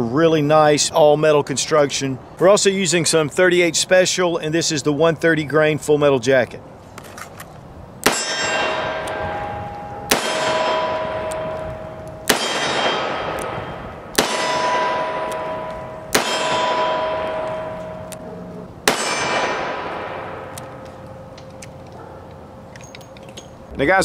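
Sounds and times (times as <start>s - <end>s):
steel target ringing: 8.0s - 22.2s.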